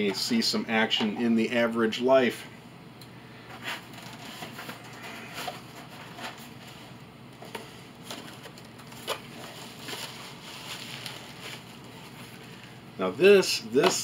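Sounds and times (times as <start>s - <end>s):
paper and cardboard rustling: 3.5s - 12.8s
sharp paper crackles: 7.4s - 12.7s.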